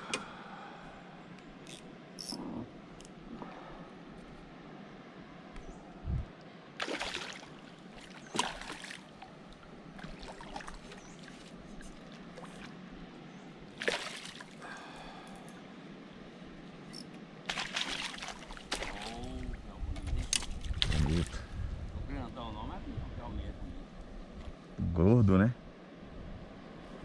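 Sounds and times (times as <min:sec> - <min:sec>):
landing net entering water: 0:06.8 - 0:09.2, 0:13.7 - 0:14.8, 0:17.5 - 0:19.5
fish splashing at water surface: 0:06.8 - 0:09.3, 0:13.7 - 0:15.0, 0:17.5 - 0:19.4.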